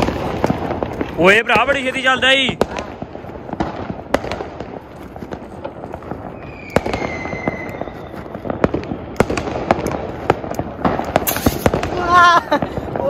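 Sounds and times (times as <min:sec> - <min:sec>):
firecracker bangs: 0:00.0 - 0:13.0
steady crackle: 0:00.0 - 0:13.0
faint falling whistle: 0:06.4 - 0:08.2.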